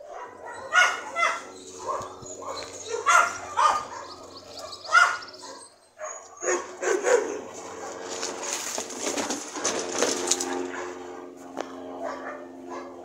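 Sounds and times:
dog barking and yipping: 0.0s - 8.4s, 10.4s - 11.1s, 12.0s - 13.0s.

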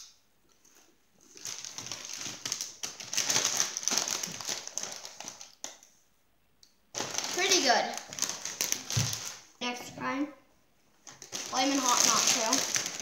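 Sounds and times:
chip bags crinkling: 0.6s - 5.9s, 6.9s - 9.6s, 11.0s - 13.0s.

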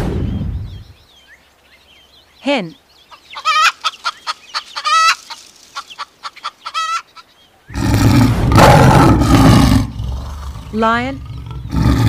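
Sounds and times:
hens clucking: 3.1s - 7.3s
lion roaring: 7.7s - 12.0s.

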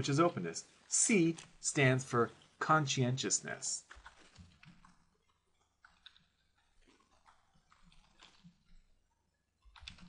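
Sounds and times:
keystrokes on computer keyboard: 9.7s - 10.0s.

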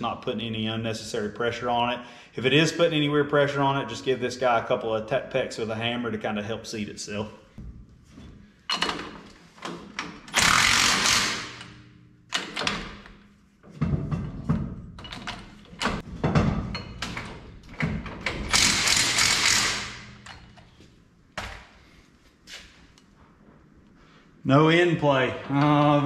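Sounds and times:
power tool running nuts down: 10.3s - 11.7s, 18.5s - 20.0s
metal clinks and knocks: 12.3s - 19.5s.

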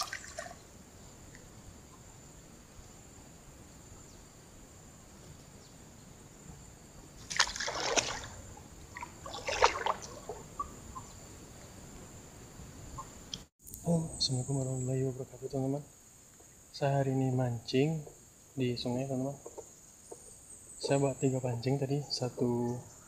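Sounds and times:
water splashing and sloshing: 0.0s - 0.8s, 7.2s - 11.1s.

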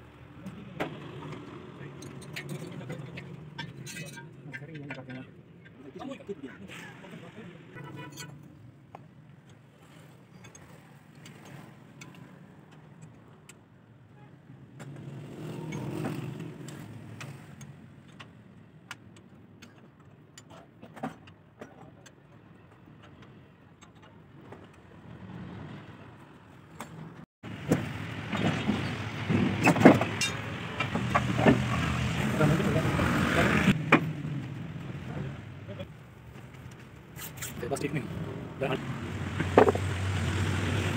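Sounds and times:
hand tools clinking on metal: 1.2s - 5.8s, 29.6s - 31.2s.

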